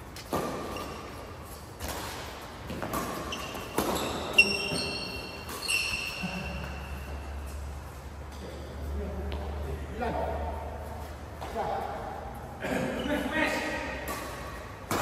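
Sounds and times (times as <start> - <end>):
court shoes squeaking: 0.0 - 15.0
rackets hitting shuttlecock: 0.1 - 7.7, 13.7 - 15.0.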